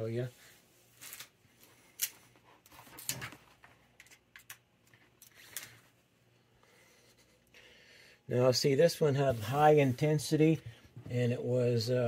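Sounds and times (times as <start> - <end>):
small objects clicking and tapping: 4.0 - 5.8.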